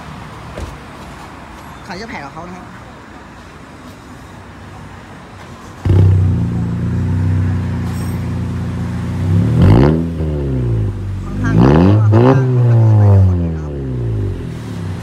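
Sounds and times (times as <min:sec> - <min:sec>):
car engine idling and revving: 0:05.7 - 0:15.0.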